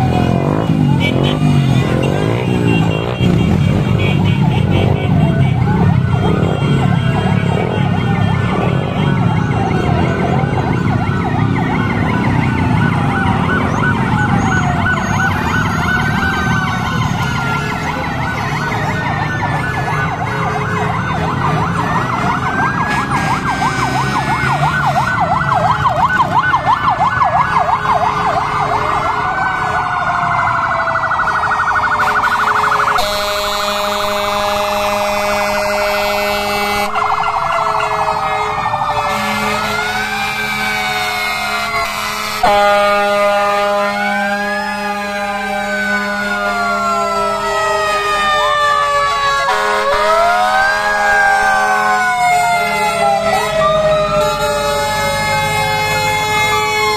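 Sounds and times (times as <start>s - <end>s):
steady horn blast: 0.0s - 10.0s, 32.0s - 37.0s, 38.2s - 48.2s, 49.5s - 50.0s
emergency sirens wailing: 0.0s - 56.9s.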